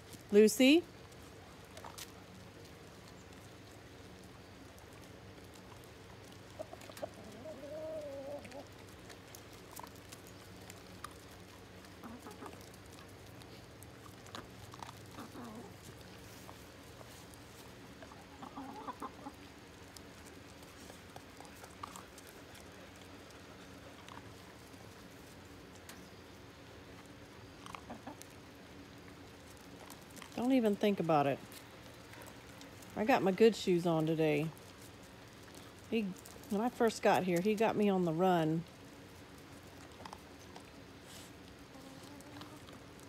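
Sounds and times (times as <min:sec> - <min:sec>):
chickens clucking: 0:06.3 - 0:08.9, 0:11.8 - 0:13.1, 0:14.0 - 0:17.2, 0:17.9 - 0:19.6, 0:27.6 - 0:28.4, 0:41.6 - 0:42.8
chicken drawn-out call: 0:06.6 - 0:08.7, 0:18.0 - 0:19.5.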